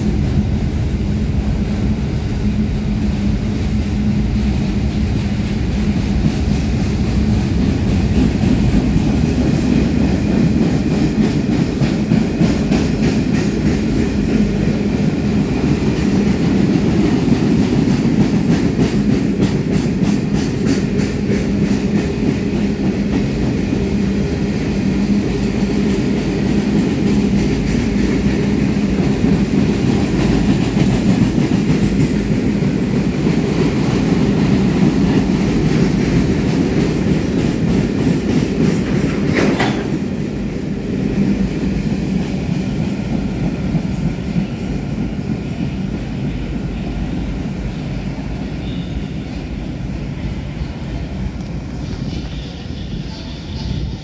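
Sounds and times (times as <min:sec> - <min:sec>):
freight train rumbling past: 0:00.0 - 0:54.0
wheels clicking over rail joints: 0:25.9 - 0:40.2
train wheel squeal: 0:48.4 - 0:49.7, 0:51.8 - 0:54.0.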